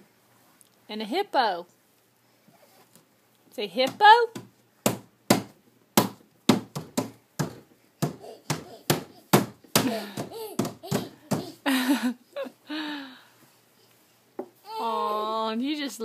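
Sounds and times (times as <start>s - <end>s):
hand slapping wooden panel: 3.8s - 11.5s
toddler babbling and squealing: 8.0s - 9.4s, 10.0s - 11.6s.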